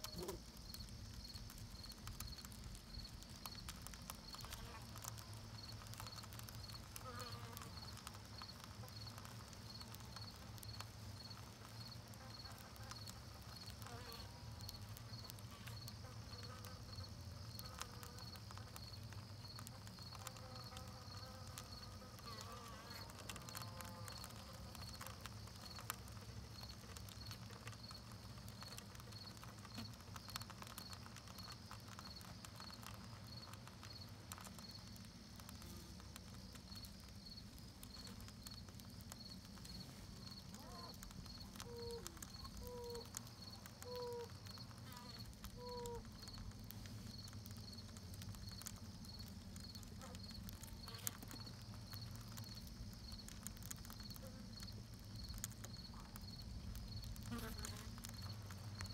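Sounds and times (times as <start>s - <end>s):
small ticks and crackles: 0.0s - 58.9s.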